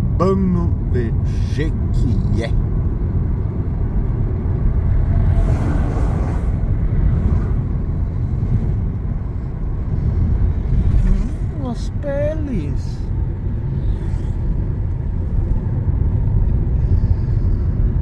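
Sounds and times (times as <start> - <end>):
car cabin road noise: 0.0 - 18.0
truck rushing past: 4.2 - 11.5.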